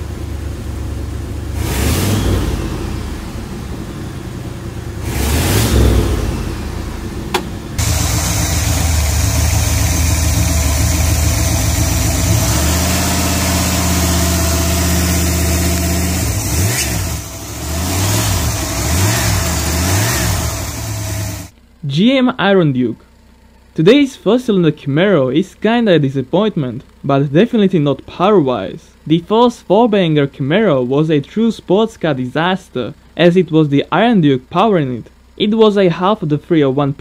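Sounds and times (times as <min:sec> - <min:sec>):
car engine revving: 0:00.0 - 0:21.5
car engine idling: 0:00.0 - 0:37.0.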